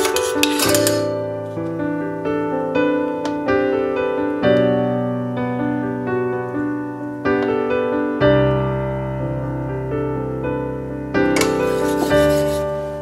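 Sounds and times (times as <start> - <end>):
slow solo piano piece: 0.0 - 13.0.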